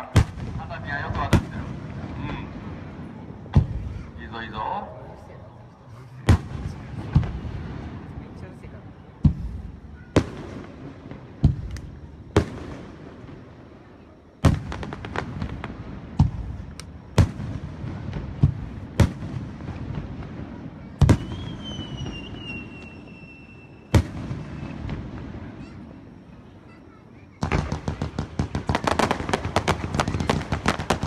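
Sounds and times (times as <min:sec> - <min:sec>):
crackling pops: 0:11.4 - 0:12.6, 0:16.2 - 0:17.3.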